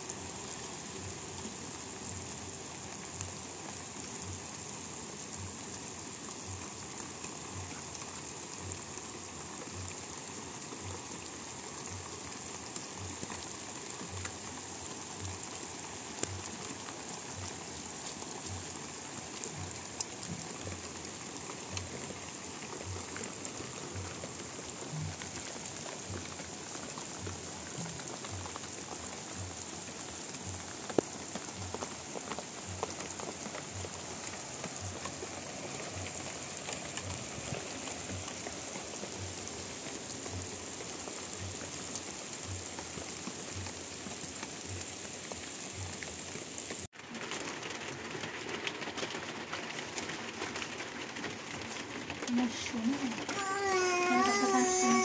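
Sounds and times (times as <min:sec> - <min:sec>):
rain falling: 0:00.0 - 0:55.0
drip ticks: 0:03.0 - 0:46.8.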